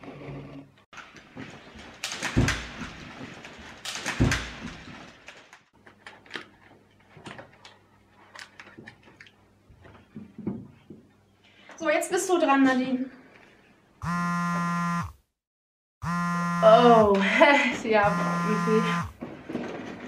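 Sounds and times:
pages turning and paper rustling: 1.0s - 9.3s.

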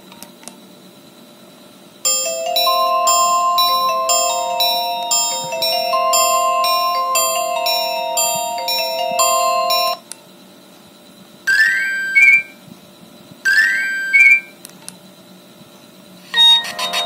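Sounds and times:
phone ringtone melodies: 2.1s - 10.0s, 16.4s - 17.0s
short rising chime phrases: 2.1s - 10.0s.

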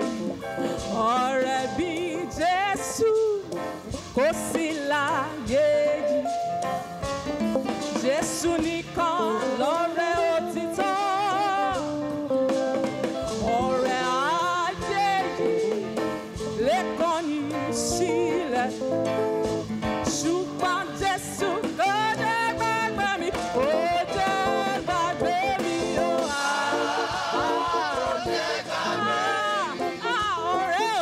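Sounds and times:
instrumental backing: 0.0s - 31.0s
person singing with vibrato: 4.2s - 6.4s, 8.0s - 12.3s, 12.9s - 19.0s, 20.2s - 31.0s.

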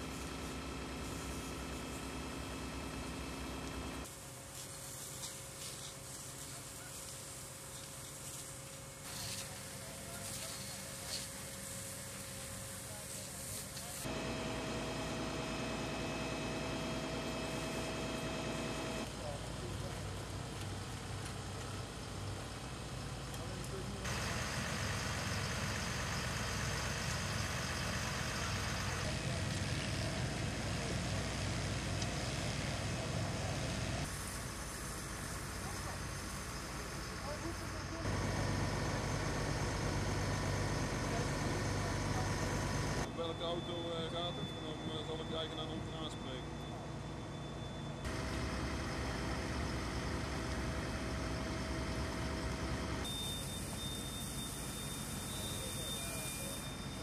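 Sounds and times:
faint steady whine: 0.0s - 57.0s
fire engine idling: 0.0s - 57.0s
truck engine idling: 34.7s - 43.1s, 48.1s - 53.0s.

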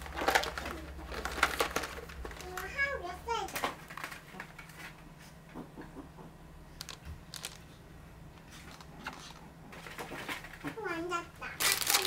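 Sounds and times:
snack packaging clicks and taps: 6.8s - 7.6s.

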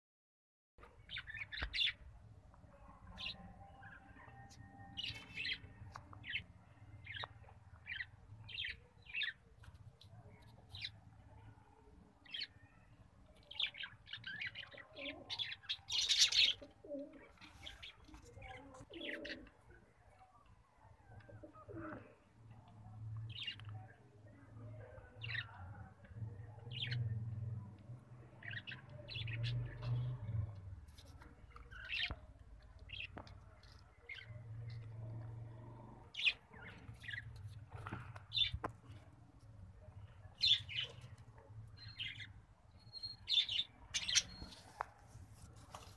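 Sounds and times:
pigeons cooing: 14.9s - 17.4s, 18.6s - 19.6s, 21.3s - 22.2s.

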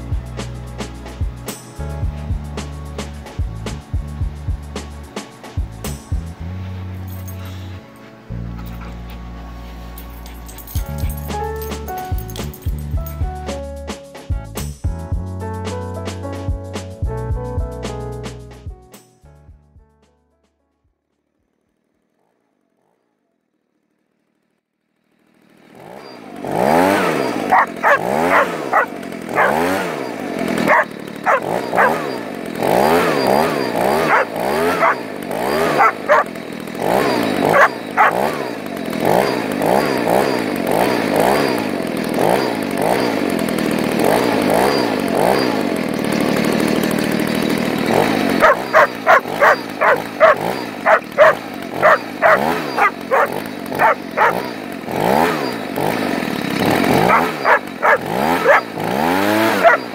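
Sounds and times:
leaf blower running: 0.0s - 13.3s, 23.5s - 59.9s
dog barking: 27.5s - 29.8s, 30.7s - 32.2s, 33.4s - 36.3s, 37.5s - 38.4s, 48.4s - 54.5s, 57.0s - 58.7s, 59.4s - 59.9s.

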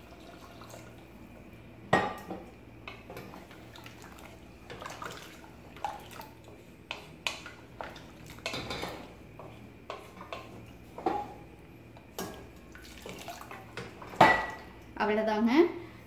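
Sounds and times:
liquid sloshing: 3.2s - 6.4s, 12.2s - 14.6s.

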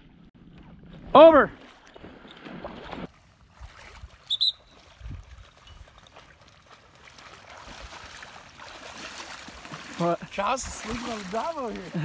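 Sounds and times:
water: 0.0s - 12.0s
wind noise: 3.5s - 6.0s
high-pitched whistle pips: 4.3s - 4.8s.

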